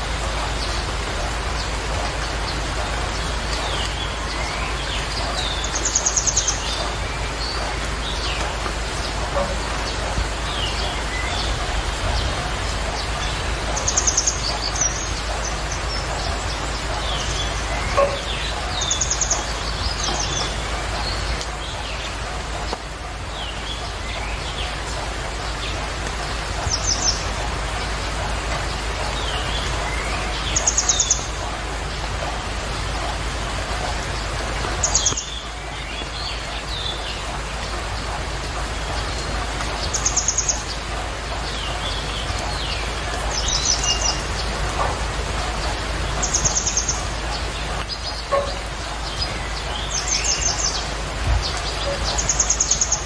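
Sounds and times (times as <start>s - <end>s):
small birds chirping: 0.0s - 53.0s
steady rushing background noise: 0.0s - 53.0s.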